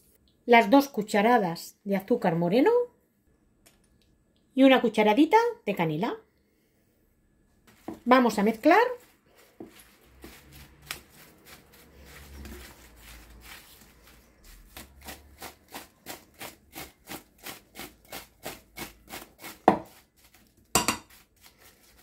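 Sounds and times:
spatula scraping in ceramic bowl: 0:07.7 - 0:22.0
knocks on bowl: 0:20.8 - 0:21.1.

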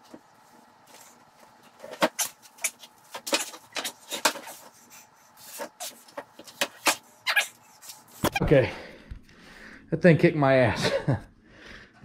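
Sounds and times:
strained breathing: 0:07.6 - 0:09.9, 0:11.4 - 0:12.0.

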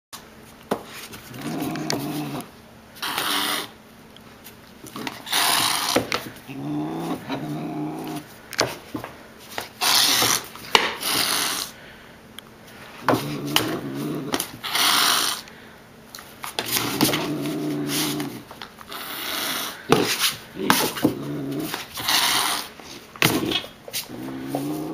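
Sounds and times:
paws tapping on tile: 0:00.7 - 0:03.3, 0:13.0 - 0:14.6
puppy growling: 0:01.2 - 0:03.8, 0:04.8 - 0:08.3, 0:13.0 - 0:15.5, 0:16.6 - 0:24.9
cat hissing: 0:01.3 - 0:03.8, 0:04.9 - 0:08.3, 0:09.8 - 0:11.8, 0:13.1 - 0:15.5, 0:16.7 - 0:24.9.

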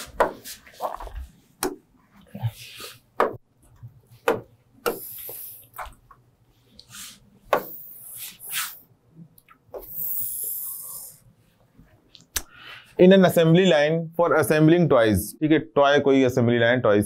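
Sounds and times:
hissy rubbing on board: 0:04.9 - 0:05.7, 0:06.9 - 0:08.8, 0:09.8 - 0:11.2.

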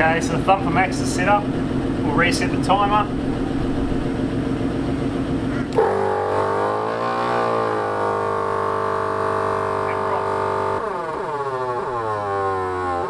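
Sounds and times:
air compressor humming: 0:00.0 - 0:05.2.

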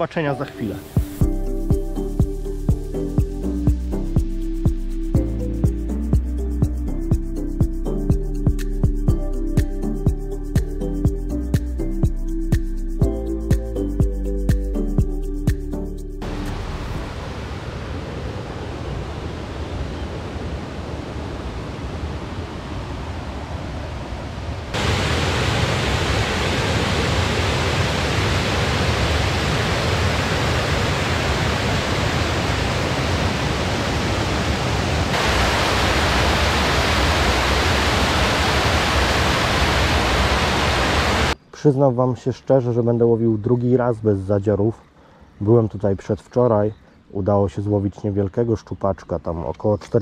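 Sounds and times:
water rushing over weir: 0:16.2 - 0:23.2, 0:24.7 - 0:41.4.

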